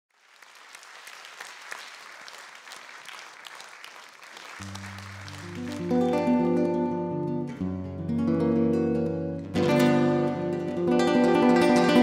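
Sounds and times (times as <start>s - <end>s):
audience applauding: 0.1s - 6.7s.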